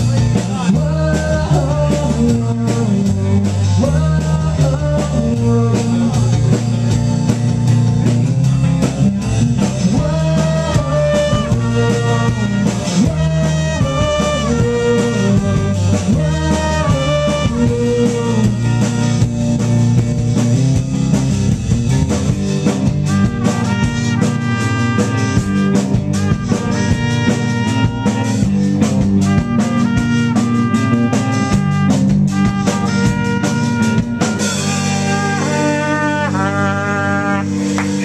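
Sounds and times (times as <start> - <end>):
drum kit: 0.0 - 38.0
trumpet lead: 10.0 - 19.9, 22.6 - 38.0.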